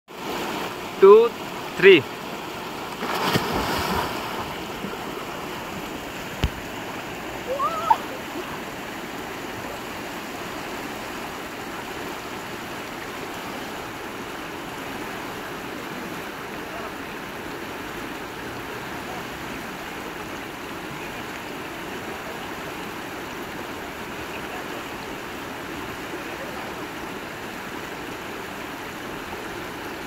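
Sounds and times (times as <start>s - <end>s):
river water rushing over rapids: 0.1s - 30.0s
splash of swimmers diving: 2.9s - 5.0s
person shouting: 7.5s - 8.2s.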